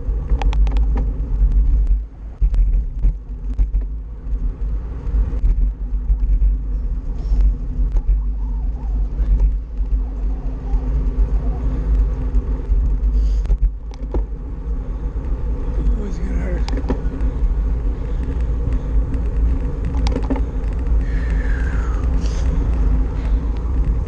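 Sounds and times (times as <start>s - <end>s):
tyre and road noise: 0.0s - 24.0s
wind buffeting microphone: 0.0s - 24.0s
small knocks from bumps: 18.7s - 20.8s.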